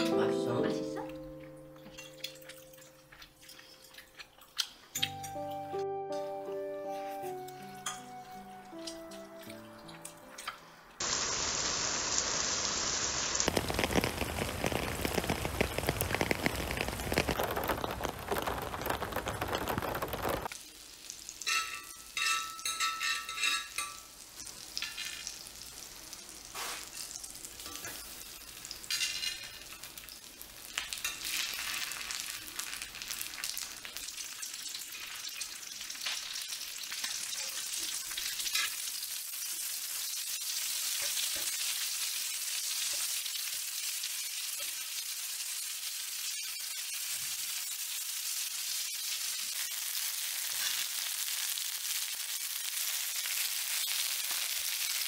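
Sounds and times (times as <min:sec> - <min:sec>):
food frying on a griddle: 0:09.8 - 0:55.0
loud steady hiss: 0:11.0 - 0:19.1
butter sizzling in a pan: 0:11.0 - 0:55.0.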